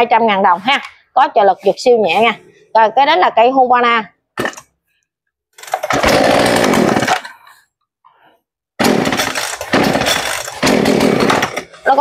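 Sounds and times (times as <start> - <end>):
chainsaw engine starting and running: 5.6 - 7.5, 8.8 - 11.9.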